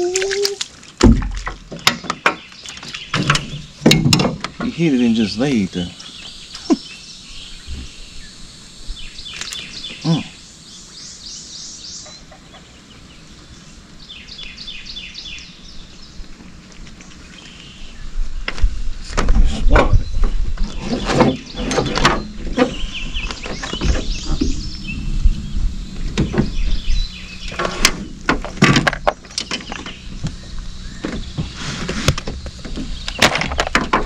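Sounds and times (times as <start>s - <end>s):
fishing gear knocking in a boat: 1.0s - 4.8s
small bird singing: 4.6s - 16.3s, 19.8s - 28.2s, 29.1s - 31.7s.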